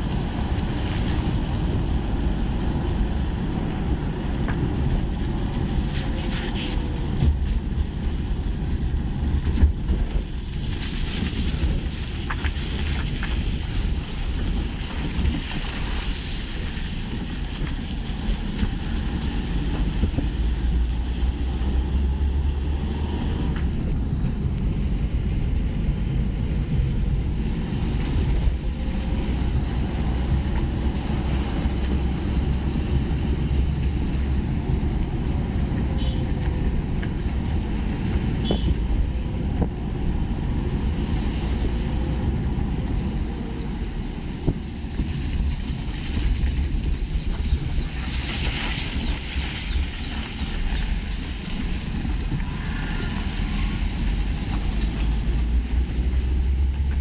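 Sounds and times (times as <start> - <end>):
low road rumble: 0.0 - 57.0
wind buffeting microphone: 0.0 - 57.0.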